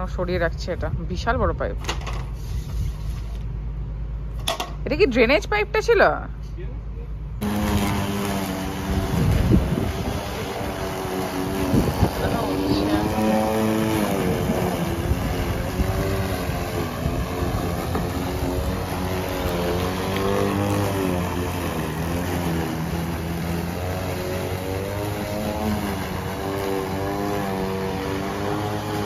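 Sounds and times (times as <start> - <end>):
electric lawn mower cutting grass: 7.4 - 29.0.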